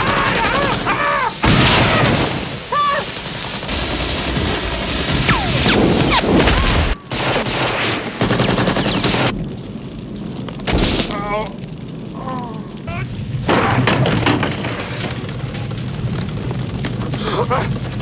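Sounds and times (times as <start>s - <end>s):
rapid gunfire: 0.0s - 9.3s.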